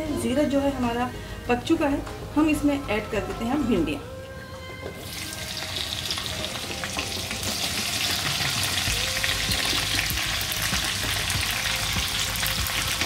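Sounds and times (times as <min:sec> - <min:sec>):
okra sizzling in hot oil: 0:05.0 - 0:13.0.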